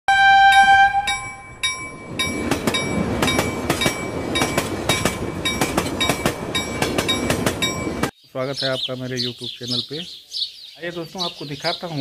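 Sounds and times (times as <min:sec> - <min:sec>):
steam locomotive whistle: 0:00.1 - 0:01.4
train rumble: 0:00.3 - 0:08.1
train wheels clacking on rails: 0:01.1 - 0:08.1.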